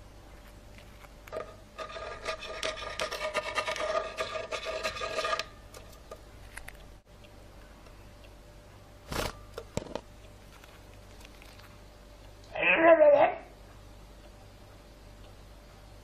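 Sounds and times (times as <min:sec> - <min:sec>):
rapid rasping scratching strokes: 0:01.3 - 0:05.5.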